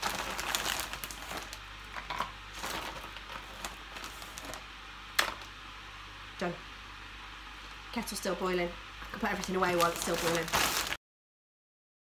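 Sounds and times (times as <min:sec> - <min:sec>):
frozen berries dropping into plastic tubs: 0:00.0 - 0:04.6, 0:05.2 - 0:05.5.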